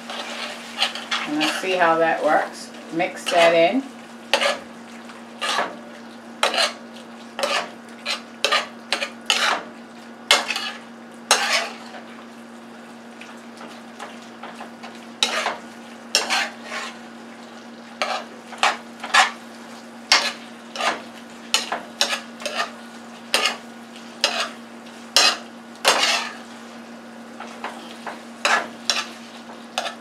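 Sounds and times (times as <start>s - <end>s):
metal utensil scraping skillet: 0.1s - 1.9s, 3.1s - 3.7s, 4.3s - 4.6s, 5.4s - 5.7s, 6.4s - 6.8s, 7.4s - 9.6s, 10.3s - 11.9s, 15.2s - 17.0s, 18.0s - 19.4s, 20.1s - 23.6s, 24.2s - 24.6s, 25.2s - 26.4s, 28.4s - 29.2s, 29.8s - 30.0s.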